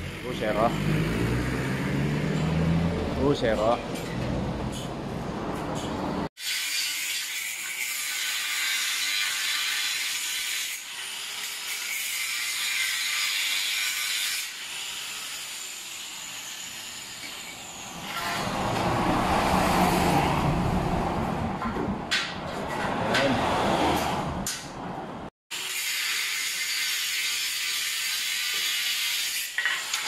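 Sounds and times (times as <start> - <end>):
angle grinder cutting steel: 0.0 - 4.2, 6.4 - 20.6, 25.5 - 30.0.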